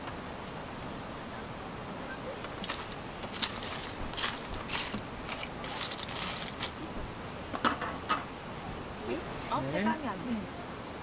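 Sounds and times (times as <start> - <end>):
clam shells clicking: 2.5 - 6.8.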